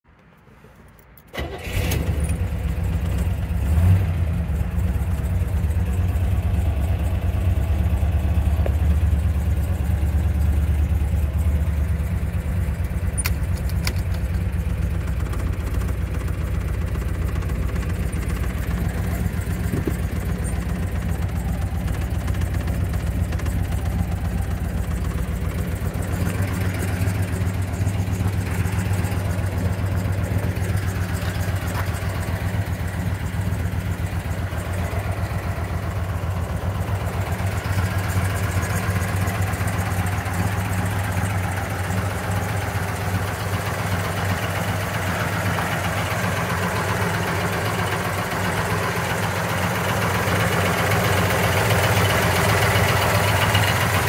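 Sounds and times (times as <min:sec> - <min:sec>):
car engine starting and idling: 0:00.1 - 0:54.0.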